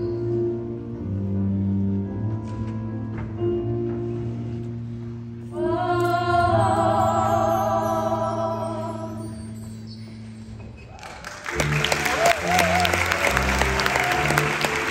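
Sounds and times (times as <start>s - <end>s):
women singing in harmony: 5.5s - 9.6s
sustained accompaniment chords: 11.4s - 14.9s.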